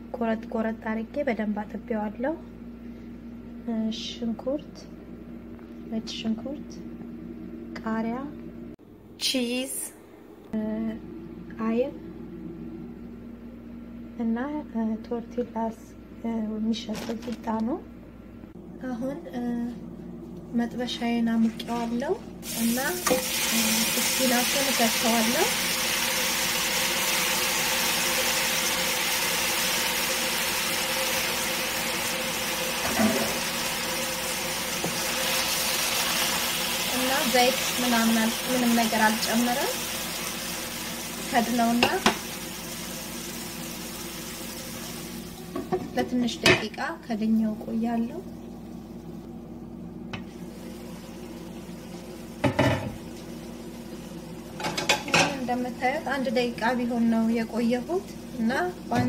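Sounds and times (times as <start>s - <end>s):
steady low hum: 0.0s - 25.7s, 32.1s - 59.0s
spinach sizzling in a pan: 22.4s - 46.4s, 50.3s - 59.0s.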